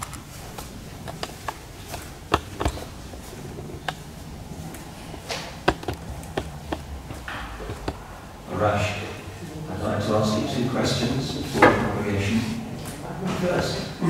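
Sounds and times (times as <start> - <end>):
footsteps on hard floor: 0.0 - 8.2
sharp taps: 0.0 - 8.3
low room hum: 0.0 - 14.0.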